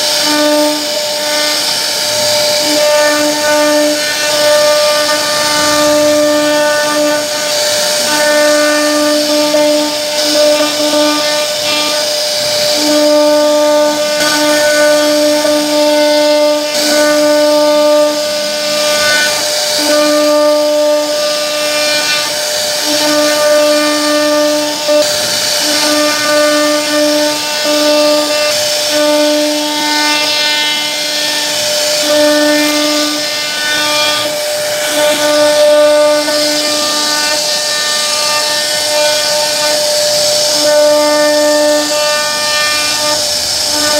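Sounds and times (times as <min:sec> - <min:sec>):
router spindle cutting wood: 0:00.0 - 0:43.9.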